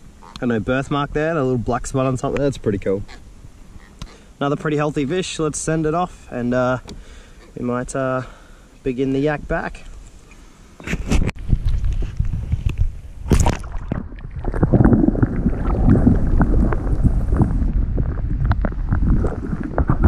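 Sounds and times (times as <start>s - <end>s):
muffled underwater river rumbling: 11.5s - 20.0s
water splashing: 13.2s - 20.0s.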